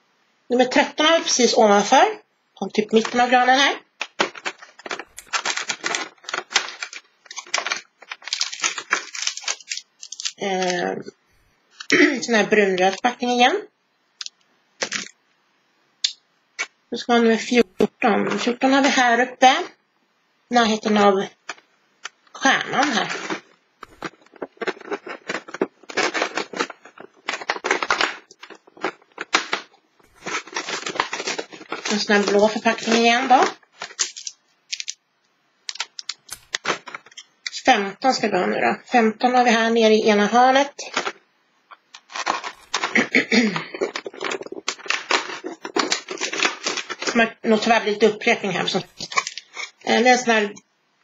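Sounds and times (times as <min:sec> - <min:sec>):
plastic wrapper crinkling: 0:04.0 - 0:10.9, 0:21.4 - 0:35.0, 0:35.7 - 0:37.6, 0:41.8 - 0:47.3, 0:48.7 - 0:49.8
cardboard scraping and crinkling: 0:22.9 - 0:33.0.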